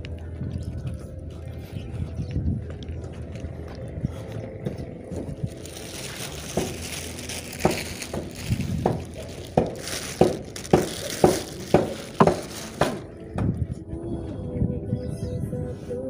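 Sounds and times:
plastic bag crinkling: 5.1 - 13.3
sharp crackles: 5.3 - 13.1.

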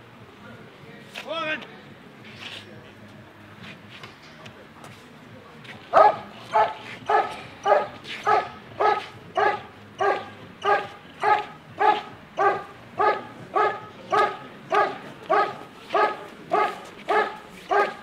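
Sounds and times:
dog barking: 5.9 - 18.0.

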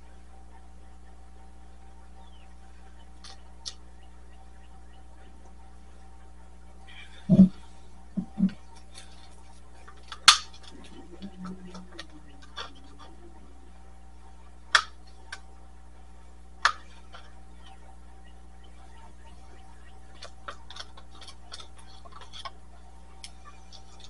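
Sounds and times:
steady low hum: 0.0 - 24.0
plastic cups knocking and clicking: 9.9 - 13.2.

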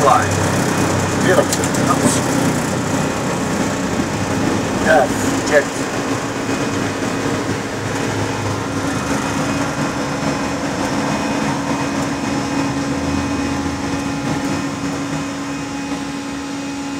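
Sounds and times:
aircraft engine and airflow noise: 0.0 - 16.9
constant low hum: 0.0 - 16.9.

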